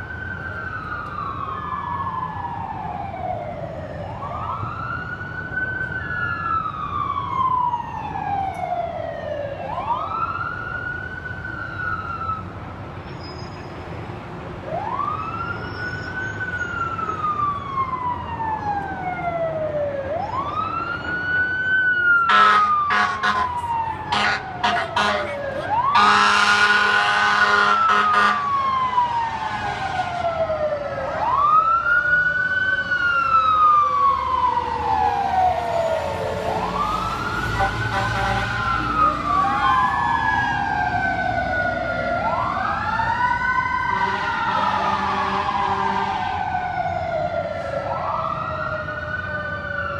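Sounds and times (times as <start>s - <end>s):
wailing siren: 0.0s - 12.8s, 14.6s - 49.9s
loud low horn blasts: 22.3s - 28.5s, 37.5s - 39.2s, 43.9s - 46.1s.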